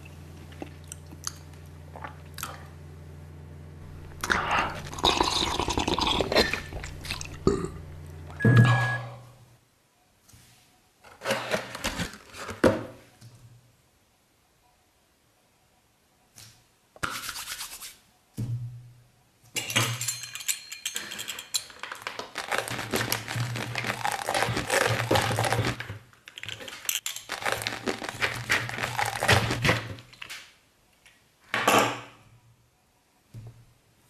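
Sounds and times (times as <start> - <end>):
low hum: 0.0 - 9.6
pizza cutter crunching dry noodles: 22.0 - 30.4.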